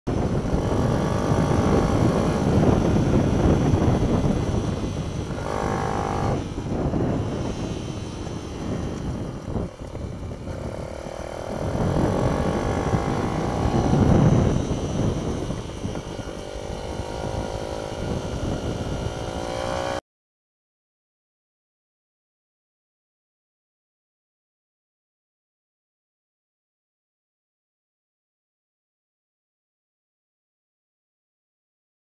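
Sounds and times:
mini-bike engine revving: 0.1 - 20.0
wind rumble on microphone: 0.1 - 20.0.

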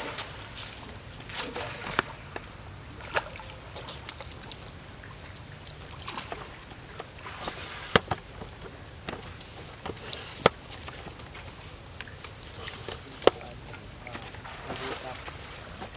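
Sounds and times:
water splashing and lapping: 0.0 - 15.9.

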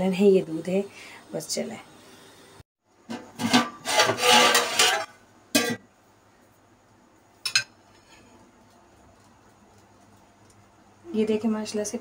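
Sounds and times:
rough rubbing and scraping: 3.4 - 5.1.

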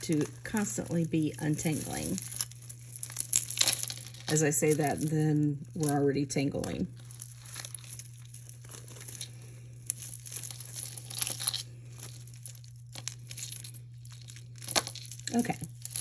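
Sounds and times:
steady low hum: 0.0 - 16.0
beads and chain links clicking: 1.7 - 5.1, 9.9 - 16.0.

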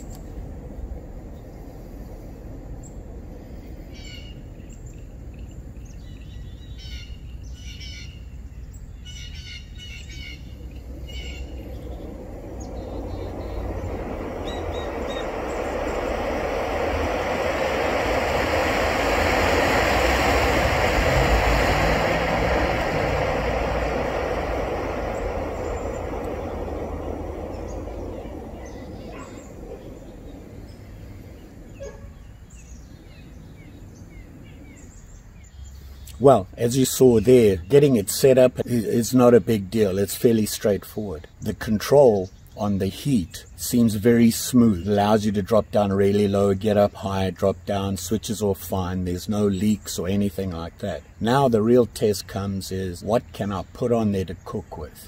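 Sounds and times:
gas stove burner hissing: 0.0 - 42.0
birds chirping: 0.0 - 55.0.

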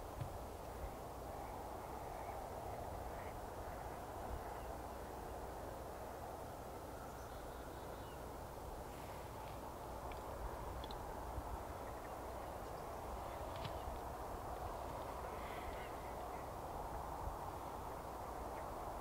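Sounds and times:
low rumble and hiss: 0.0 - 19.0.

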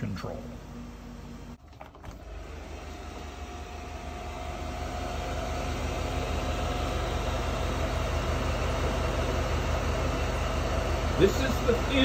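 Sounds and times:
fridge compressor humming: 0.0 - 12.0.

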